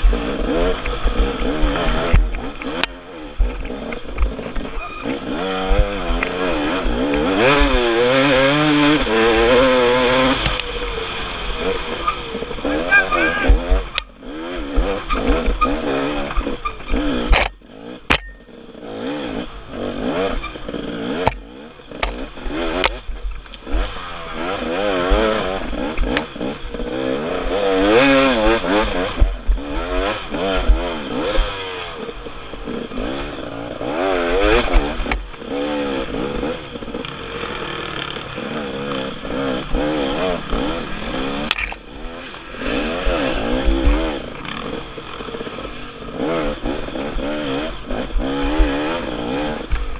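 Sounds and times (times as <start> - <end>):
dirt bike engine revving: 0.0 - 49.9
sharp knocks and clatter: 13.5 - 18.7.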